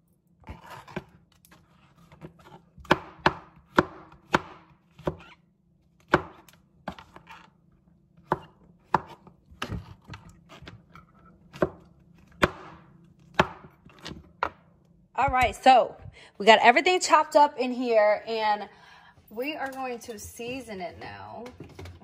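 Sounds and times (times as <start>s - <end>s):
knife chopping on cutting board: 0.4s - 5.3s, 6.0s - 7.5s, 8.2s - 14.6s.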